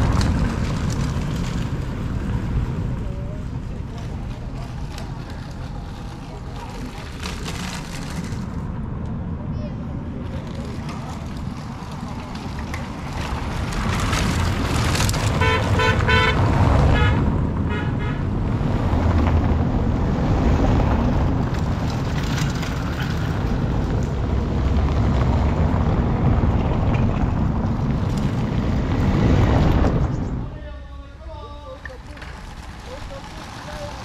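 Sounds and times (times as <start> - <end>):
passing vehicles: 0.0 - 34.0
wind: 0.0 - 34.0
vehicle horn beeping: 15.4 - 18.2.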